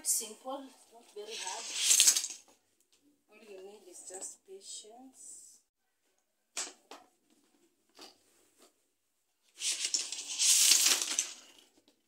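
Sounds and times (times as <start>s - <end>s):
rustling and scraping: 0.9s - 2.6s, 9.4s - 12.0s.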